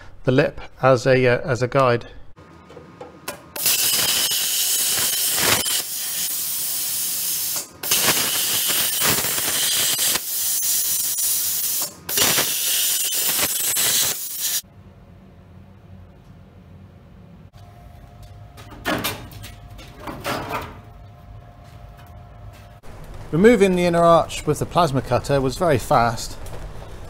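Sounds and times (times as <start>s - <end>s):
plasma cutter hissing: 3.6s - 14.6s.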